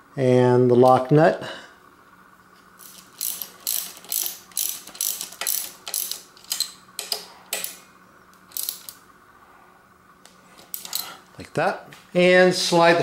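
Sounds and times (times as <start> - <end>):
ratcheting wrench clicking: 2.8 - 7.8, 8.4 - 9.0, 10.6 - 11.1.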